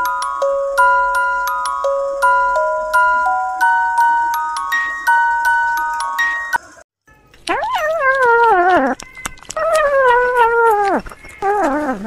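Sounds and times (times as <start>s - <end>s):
cat meowing: 7.5s - 9.0s, 9.6s - 12.0s.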